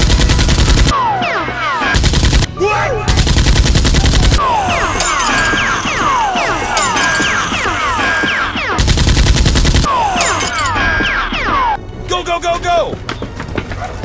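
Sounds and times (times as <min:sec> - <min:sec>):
machine-gun fire bursts: 0:00.0 - 0:00.9, 0:02.0 - 0:02.5, 0:03.1 - 0:05.6, 0:08.7 - 0:10.7.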